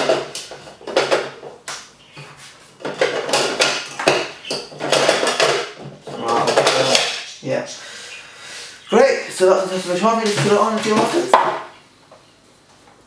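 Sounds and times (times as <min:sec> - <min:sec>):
plastic parts clicking and clattering: 0:00.0 - 0:01.5, 0:02.8 - 0:07.2.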